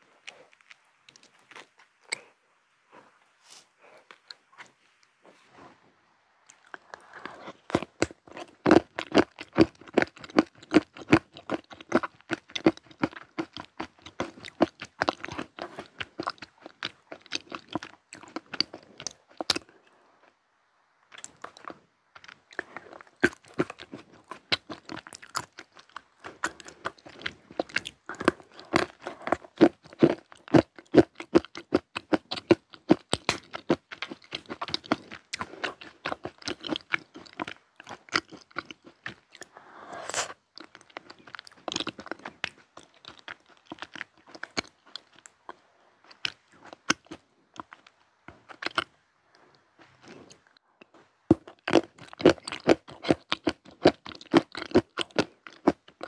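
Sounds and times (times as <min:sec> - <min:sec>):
close chewing and crunching: 0:00.0 - 0:04.7, 0:06.4 - 0:20.4, 0:21.0 - 0:56.0.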